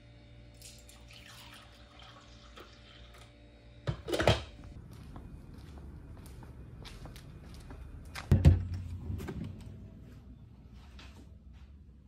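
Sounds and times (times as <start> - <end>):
coffee pouring into mug: 0.6 - 3.3.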